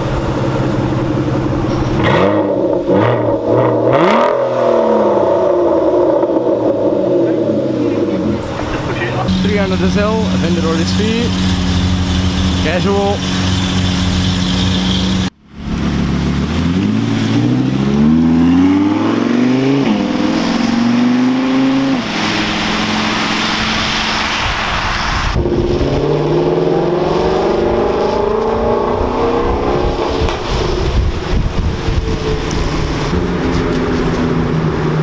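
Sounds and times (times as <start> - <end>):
sports car engine accelerating: 0.0 - 35.0
tyres hissing on wet road: 8.3 - 28.4.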